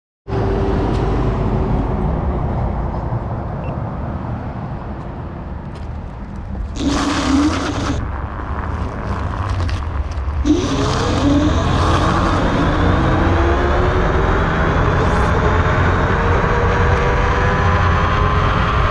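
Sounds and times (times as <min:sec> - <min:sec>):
tyre and road noise: 0:00.3 - 0:18.9
electric motor whine: 0:06.8 - 0:09.8, 0:10.4 - 0:18.9.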